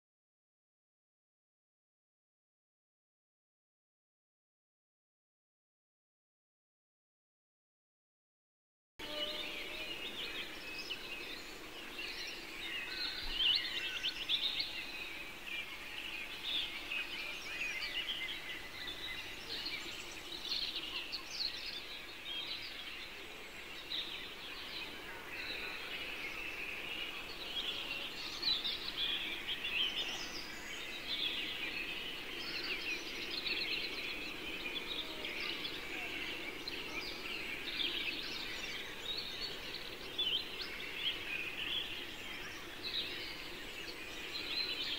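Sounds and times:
birds chirping: 9.0 - 44.9.

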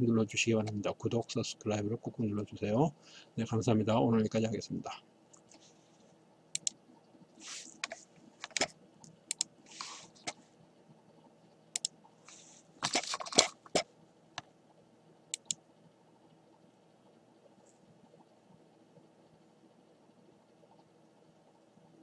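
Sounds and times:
mouse and keyboard clicks: 6.6 - 6.8, 7.6 - 10.4, 11.8 - 12.0, 15.4 - 15.6
soft rustles: 7.4 - 8.7, 9.7 - 10.6.

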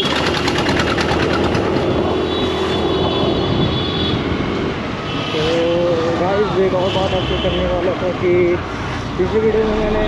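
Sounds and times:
scooter engine humming: 0.0 - 6.7
wind rush on microphone: 1.2 - 6.4.

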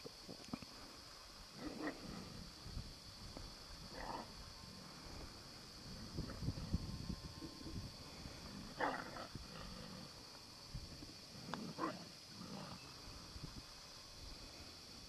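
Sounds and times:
distant wolf calls: 8.1 - 10.2.

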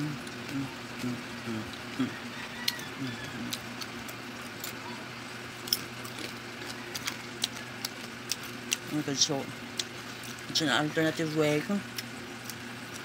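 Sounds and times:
crispy chips crunching: 1.8 - 10.6.

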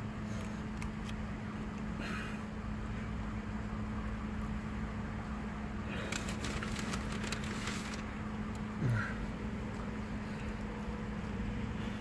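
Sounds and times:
low hum inside car: 0.0 - 12.0
paper wrapper crinkling: 6.0 - 8.2.

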